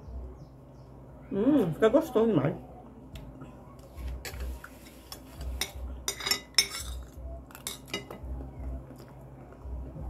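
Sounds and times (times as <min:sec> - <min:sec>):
cutlery clinking on glass dishes: 0:04.2 - 0:08.2.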